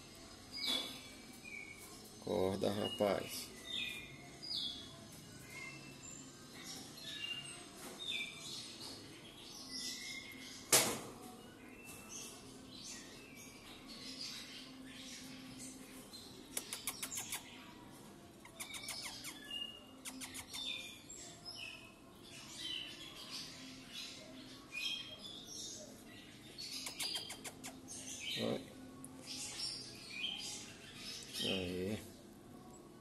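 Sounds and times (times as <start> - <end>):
small birds chirping: 0.0 - 33.0
clicking bird trills: 16.5 - 17.5, 18.4 - 19.4, 20.0 - 20.7, 26.7 - 27.8.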